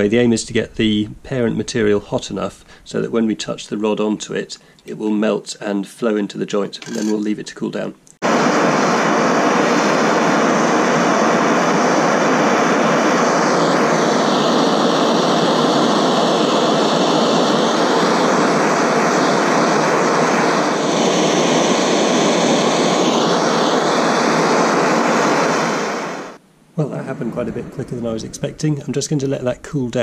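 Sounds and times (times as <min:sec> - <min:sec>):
blowtorch hissing: 0:08.3 - 0:26.4.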